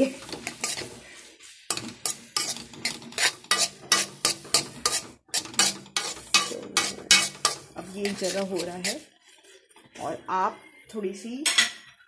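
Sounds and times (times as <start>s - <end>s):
spatula scraping metal pan: 0.0s - 9.6s.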